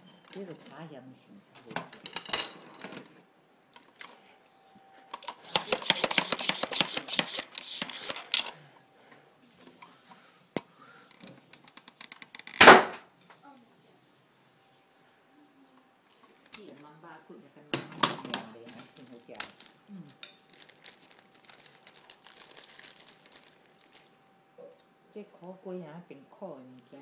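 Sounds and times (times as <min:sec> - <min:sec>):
toy blaster clicking and rattling: 0:05.1 - 0:08.6, 0:11.1 - 0:12.9
toy blaster firing blast: 0:05.3 - 0:08.5, 0:12.5 - 0:13.0.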